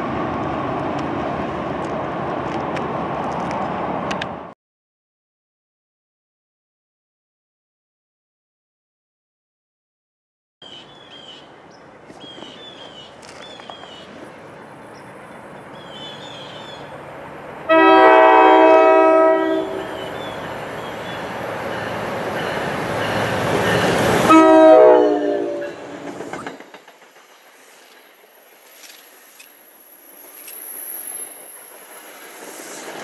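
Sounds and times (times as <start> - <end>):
train rumble: 0.0 - 4.6, 11.4 - 33.0
locomotive horn blast: 17.7 - 20.2, 24.0 - 26.0.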